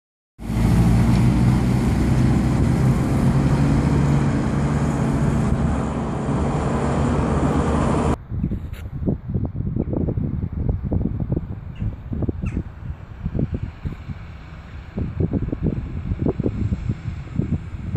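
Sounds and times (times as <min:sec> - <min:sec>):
truck engine driving off: 0:00.4 - 0:08.2, 0:13.1 - 0:17.9.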